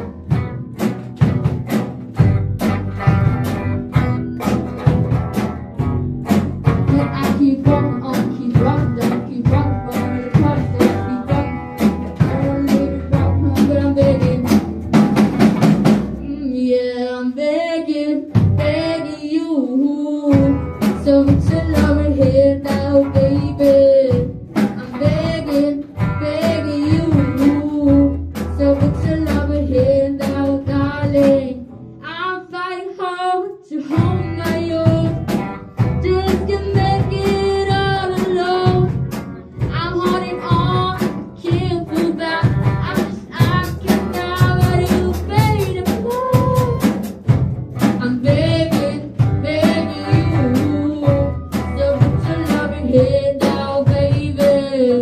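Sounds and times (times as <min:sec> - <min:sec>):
drum kit: 0:00.0 - 0:16.6, 0:18.2 - 0:19.2, 0:20.3 - 0:31.8, 0:33.8 - 0:55.0
electric guitars: 0:00.0 - 0:17.4, 0:18.3 - 0:32.6, 0:33.9 - 0:55.0.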